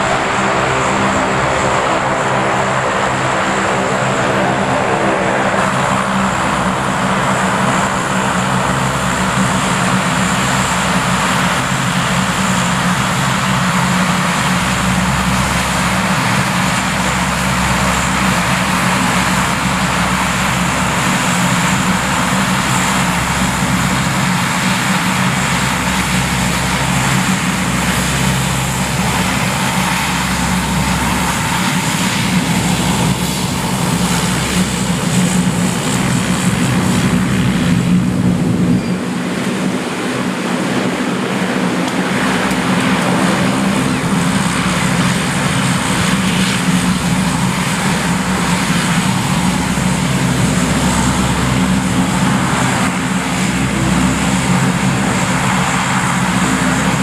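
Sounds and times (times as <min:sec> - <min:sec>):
propeller drone: 0:00.0 - 0:57.0.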